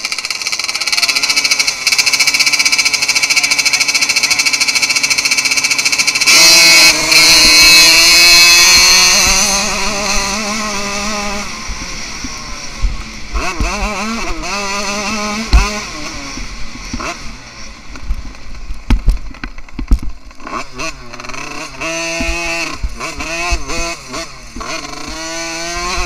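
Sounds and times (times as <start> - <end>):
two-stroke minibike engine revving: 0.0 - 26.0.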